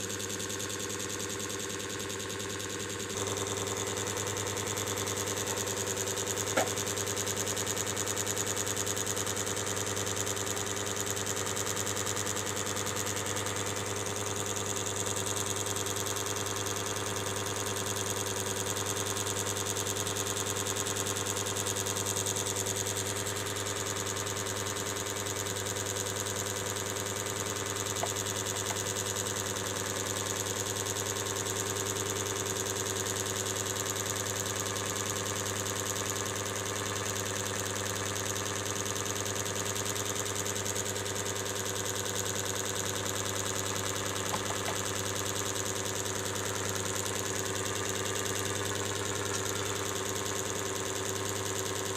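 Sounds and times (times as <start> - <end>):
machine hum: 3.0 - 7.2, 48.5 - 50.2.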